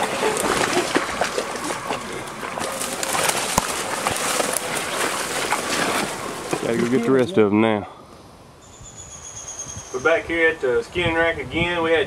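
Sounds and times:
twigs crackling and rustling: 0.0 - 7.3
footsteps through dry leaves: 0.2 - 6.7.

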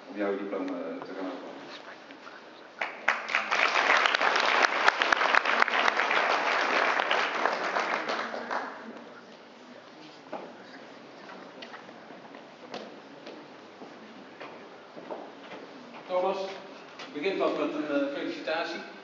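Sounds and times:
audience applauding: 2.8 - 9.0.

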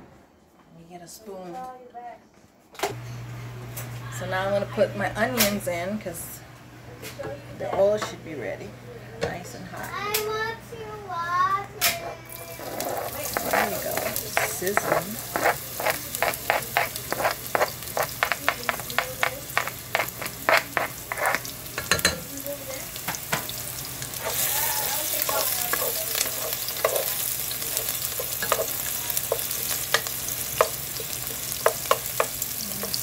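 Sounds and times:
onions sizzling in oil: 12.3 - 33.0
spoon tapping and scraping board: 12.6 - 22.2, 25.2 - 33.0.

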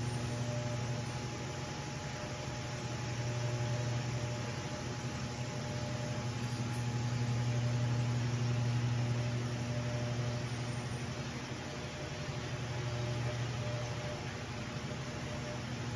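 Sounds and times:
low mechanical hum: 0.0 - 15.9.

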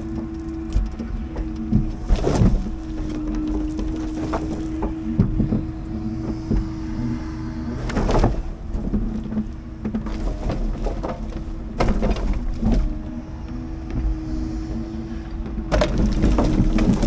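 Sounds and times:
held hum: 0.0 - 17.0
truck diesel engine running: 0.0 - 17.0
knocks and thud: 0.2 - 7.0, 7.8 - 13.0, 15.5 - 17.0.

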